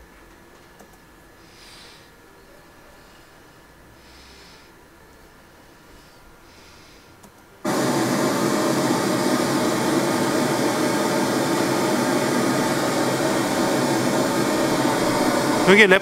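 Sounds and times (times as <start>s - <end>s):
pink noise hiss from loudspeaker: 11.1s - 16.0s.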